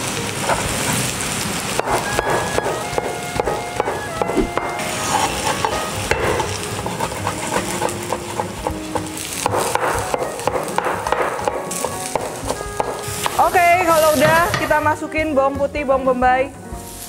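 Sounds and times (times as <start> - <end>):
mushrooms sizzling in a pan: 0.0 - 17.0
knife chopping on wooden board: 1.8 - 4.7, 5.4 - 13.4.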